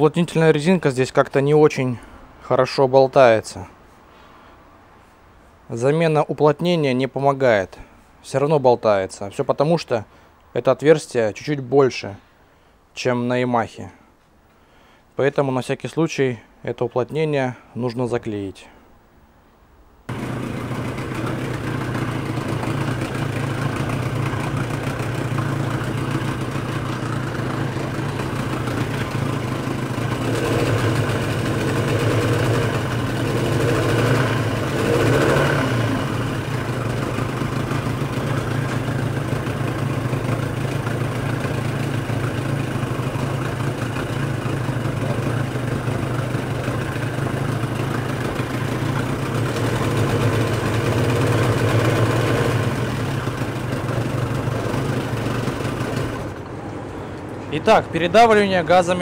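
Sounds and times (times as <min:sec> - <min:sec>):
outboard engine idling: 0:20.1 - 0:56.4.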